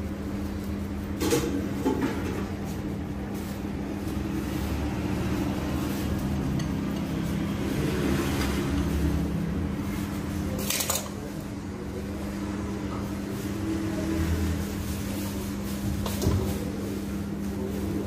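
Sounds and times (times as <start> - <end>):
dishes clinking and scraping: 1.2 - 2.8, 10.5 - 11.3.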